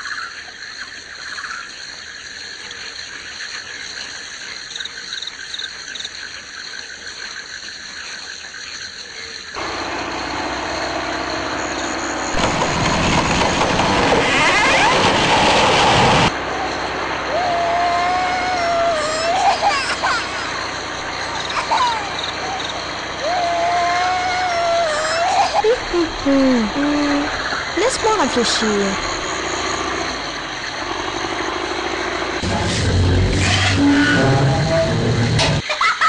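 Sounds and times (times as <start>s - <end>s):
loud machine engine: 9.6s - 35.6s.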